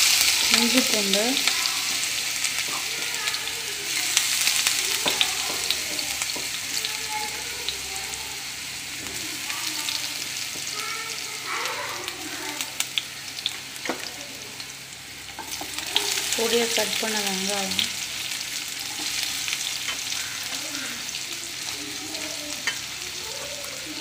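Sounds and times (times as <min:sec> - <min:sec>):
spices sizzling in hot oil: 0:00.0 - 0:24.0
spoon scraping against pan: 0:18.8 - 0:20.6.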